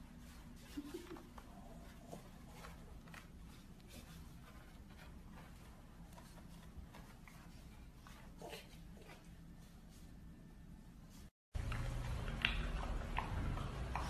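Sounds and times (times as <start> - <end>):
low room hum: 0.0 - 14.0
dog rubbing on carpet: 0.1 - 10.1.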